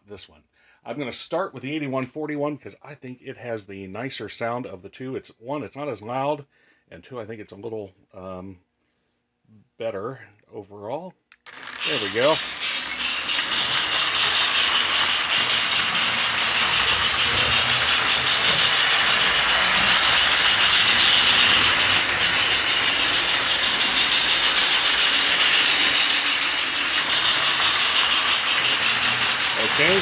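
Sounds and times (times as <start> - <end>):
toy train rattling: 11.4 - 30.0
electronic steam chuff: 11.5 - 30.0.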